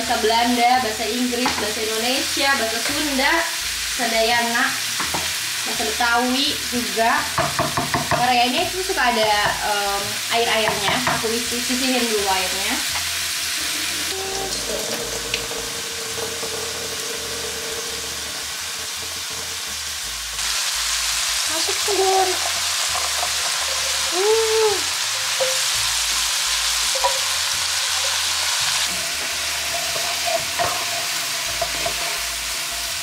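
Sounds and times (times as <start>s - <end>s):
vegetables sizzling in a frying pan: 0.0s - 33.0s.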